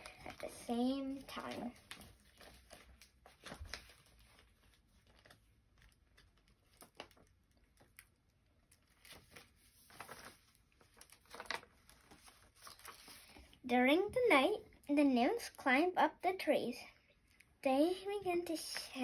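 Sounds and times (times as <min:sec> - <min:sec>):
paper pages rustling: 0:00.0 - 0:13.6.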